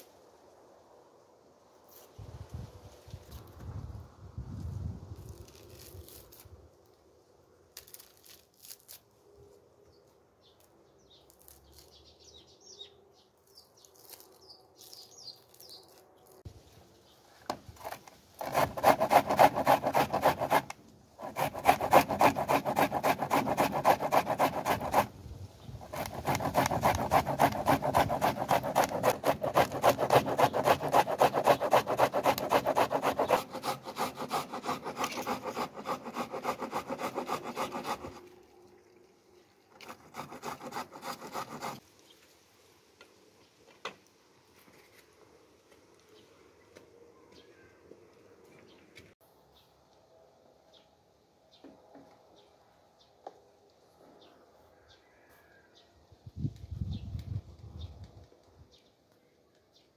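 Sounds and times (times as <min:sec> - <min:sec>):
food grating on metal grater: 0:17.8 - 0:25.1, 0:25.8 - 0:38.3, 0:39.8 - 0:41.8.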